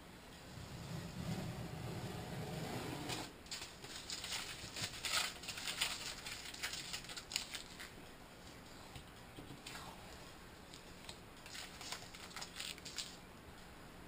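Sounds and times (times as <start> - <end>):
masking tape ripping and rustling: 3.0 - 8.0, 11.0 - 13.2.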